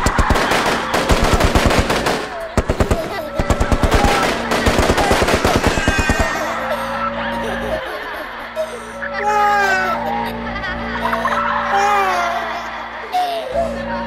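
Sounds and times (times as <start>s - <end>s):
rapid automatic gunfire: 0.0s - 6.6s
music: 0.0s - 14.0s.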